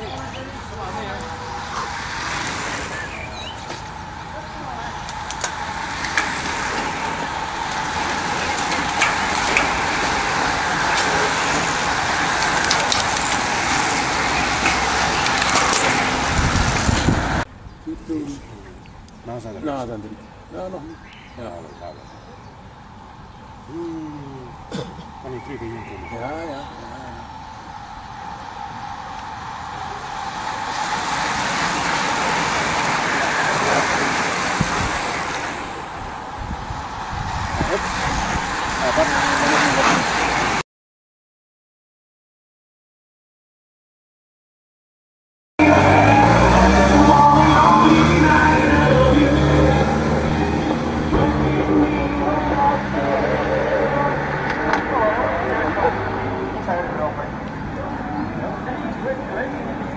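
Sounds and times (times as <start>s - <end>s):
bicycle tyres hissing on tarmac: 1.6s - 3.6s, 4.3s - 17.4s, 25.3s - 40.6s
vehicle tyre hiss on tarmac: 27.5s - 40.6s.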